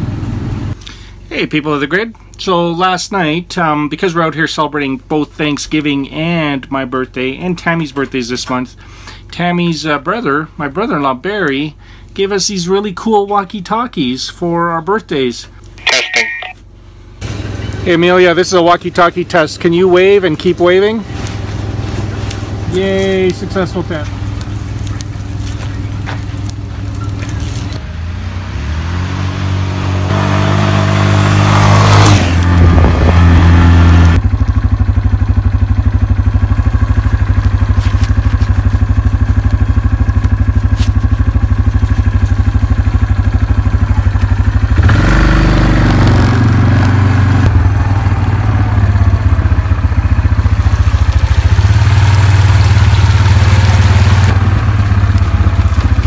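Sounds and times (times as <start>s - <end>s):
motorbike engine revving: 17.2s - 56.0s.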